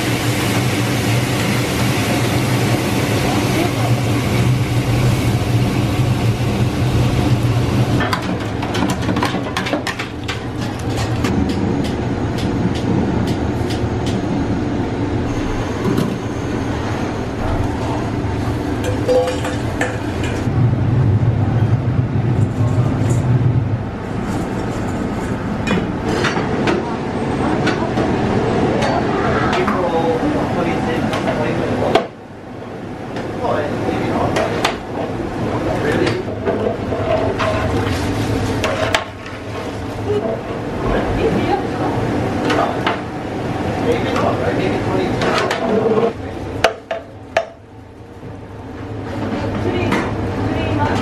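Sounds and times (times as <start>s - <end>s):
oil bubbling and crackling: 0.0s - 12.0s
low kitchen hum: 0.0s - 51.0s.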